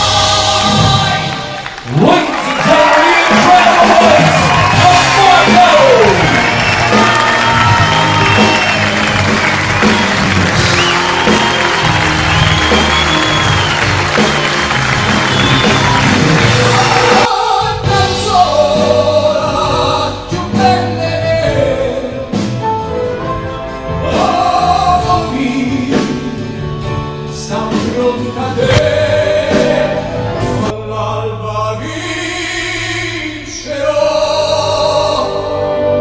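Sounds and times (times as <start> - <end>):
man singing: 0.0 - 7.1, 16.5 - 22.6, 23.9 - 26.6, 27.2 - 36.0
band accompaniment: 0.0 - 36.0.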